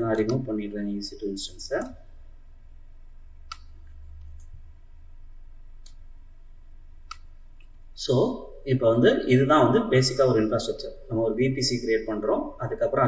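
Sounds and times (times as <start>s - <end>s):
low steady hum: 0.0s - 13.0s
faint computer mouse clicks: 3.5s - 4.6s.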